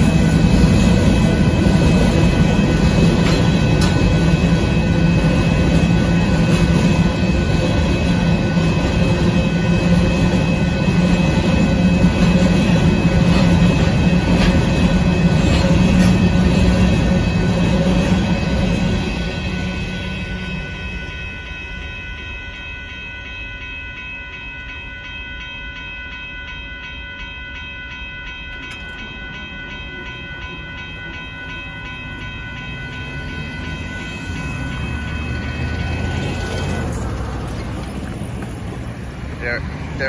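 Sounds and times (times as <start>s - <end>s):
railroad crossing bell ringing: 0.0s - 40.0s
train rumbling: 0.0s - 40.0s
passing cars: 32.1s - 40.0s.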